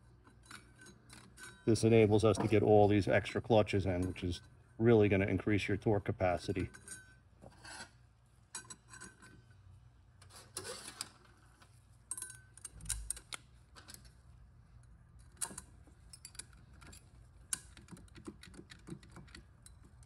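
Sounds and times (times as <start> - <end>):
light metallic clicks and clinks: 12.0 - 14.2, 14.8 - 20.0.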